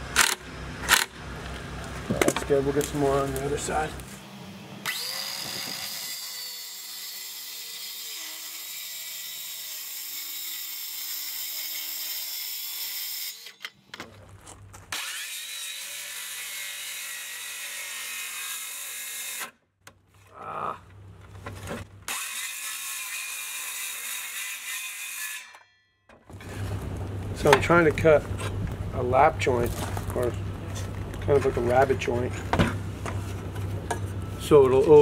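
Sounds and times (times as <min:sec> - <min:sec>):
circular saw cutting wood: 0:03.0 - 0:13.8, 0:14.9 - 0:19.6, 0:22.1 - 0:25.6.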